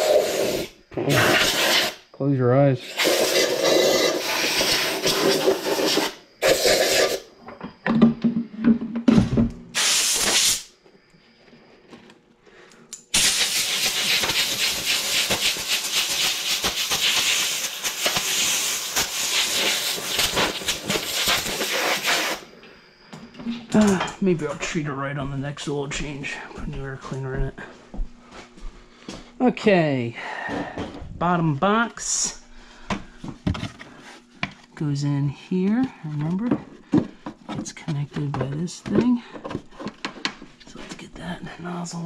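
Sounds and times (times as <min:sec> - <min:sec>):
compressed air hissing blasts: 0:00.0 - 0:02.1, 0:02.8 - 0:07.2, 0:09.7 - 0:10.7, 0:13.1 - 0:22.5.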